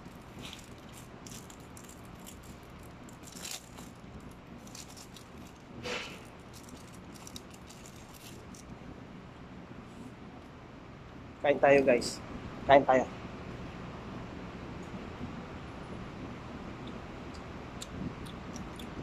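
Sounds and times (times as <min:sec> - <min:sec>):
plastic wrapping crinkling: 0:00.0 - 0:08.7.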